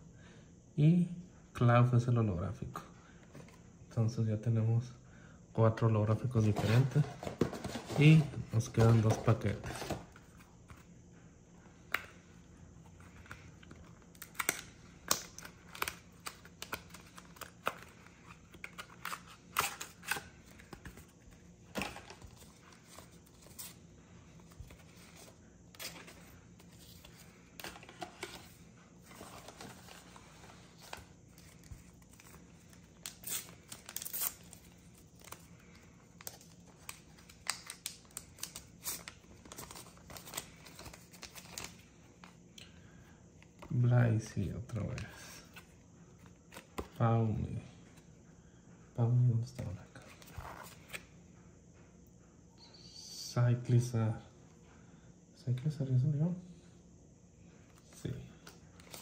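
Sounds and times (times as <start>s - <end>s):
cards being handled: 6.3s - 10.9s, 11.7s - 42.4s, 44.7s - 47.0s, 49.6s - 51.1s, 57.7s - 59.0s
foil wrapper crinkling and tearing: 31.4s - 41.8s.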